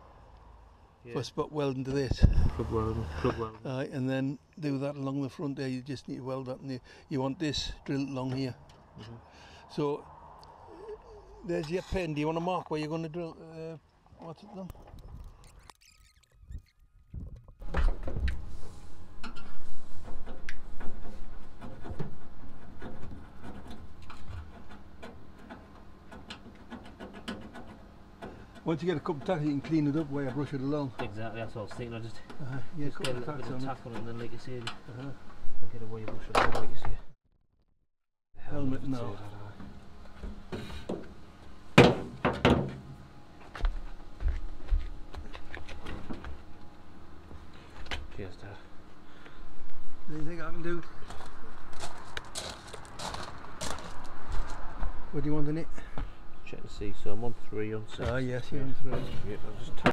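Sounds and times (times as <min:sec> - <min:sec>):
rubbing on metal panel: 0:18.4 - 0:30.5.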